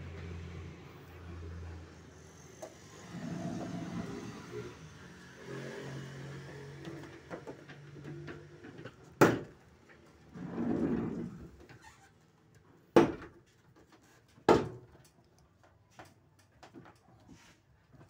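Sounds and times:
sliding door rumbling: 0:02.9 - 0:04.8, 0:10.2 - 0:11.6
sliding door clunking: 0:03.0 - 0:04.7.

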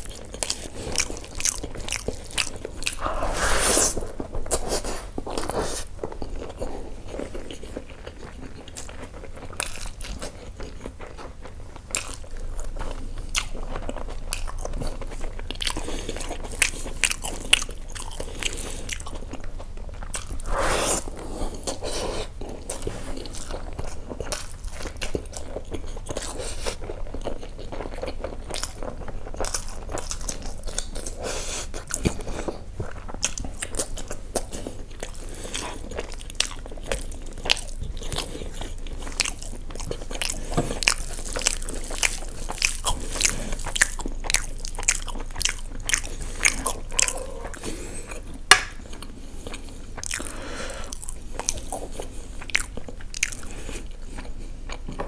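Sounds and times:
person chewing: 0:00.0 - 0:55.0.

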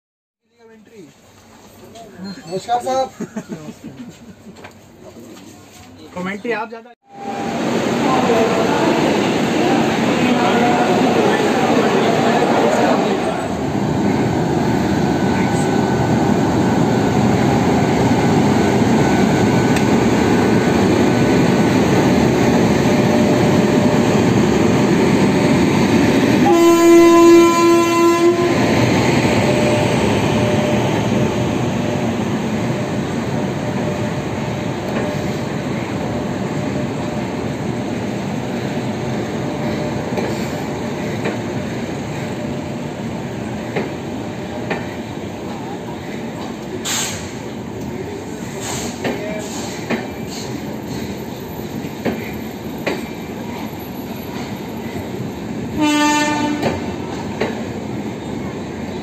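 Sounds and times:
train rumble and wheel clatter: 0:00.5 - 0:02.4, 0:03.0 - 0:59.0
locomotive horn blast: 0:26.4 - 0:28.7, 0:55.7 - 0:56.9.

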